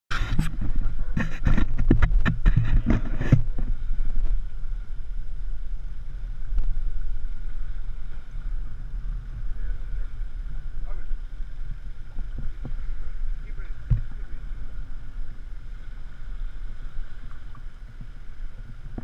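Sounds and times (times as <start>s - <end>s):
irregular crackling clatter: 0.1s - 4.5s
outboard motors rumbling: 0.1s - 19.0s
wind on microphone: 0.1s - 19.0s.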